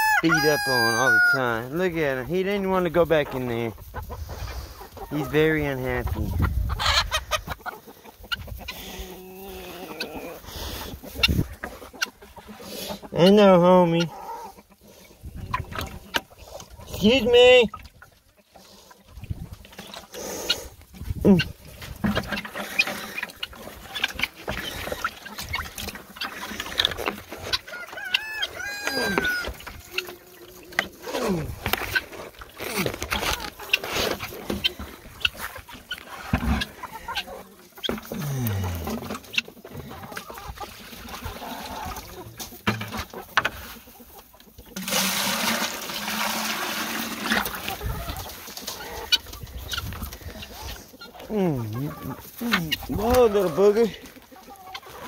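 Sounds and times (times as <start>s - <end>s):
rooster crowing: 0.0s - 1.5s, 27.7s - 29.5s
chickens clucking: 0.0s - 55.0s.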